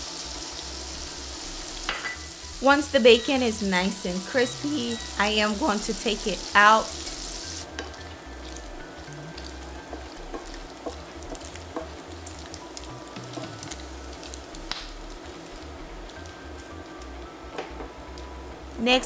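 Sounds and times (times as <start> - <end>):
bacon sizzling and popping: 0.0 - 18.8.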